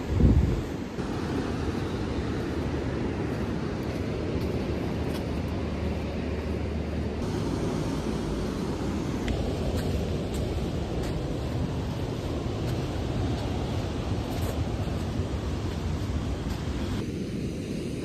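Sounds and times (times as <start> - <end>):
ocean surf: 0.0 - 18.0
wind: 0.0 - 18.0.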